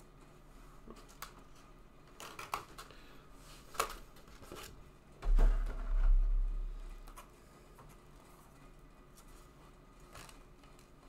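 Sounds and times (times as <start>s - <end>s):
cards clicking and rustling: 0.9s - 3.0s, 3.6s - 4.8s.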